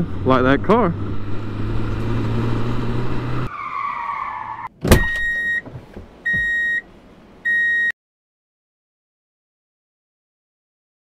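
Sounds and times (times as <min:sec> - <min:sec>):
falling squeal: 0:03.4 - 0:05.3
high electronic beep: 0:06.3 - 0:06.8.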